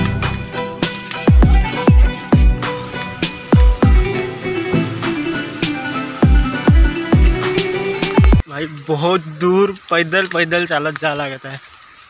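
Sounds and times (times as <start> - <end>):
electronic music with heavy beat: 0.0 - 8.4.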